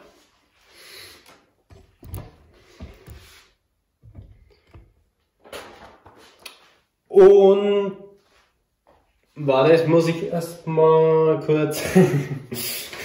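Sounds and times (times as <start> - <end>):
light knocks and clicks: 4.0 - 5.0.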